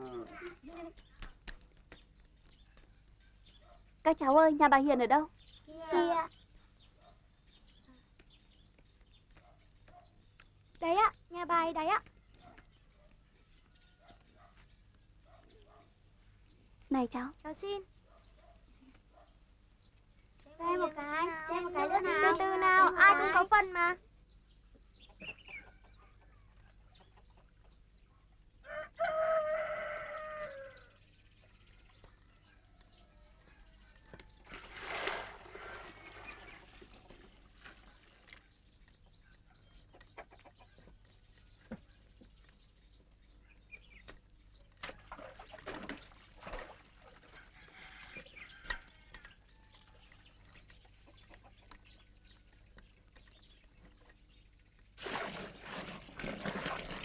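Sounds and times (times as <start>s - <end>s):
rooster crowing: 28.6s - 30.9s.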